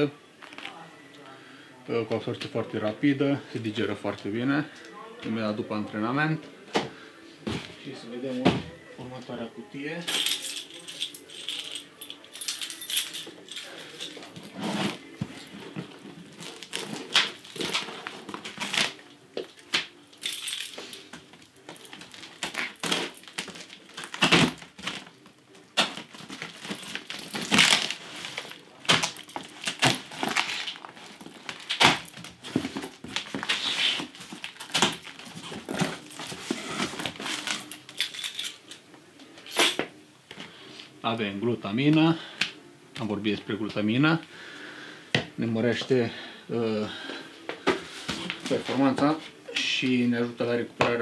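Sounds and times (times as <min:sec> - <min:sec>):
packing tape ripping: 0:16.3 - 0:38.6.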